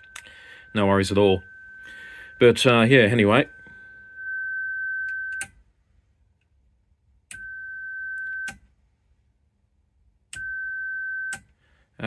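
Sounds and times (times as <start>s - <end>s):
steady high radio tone: 0.0s - 5.4s.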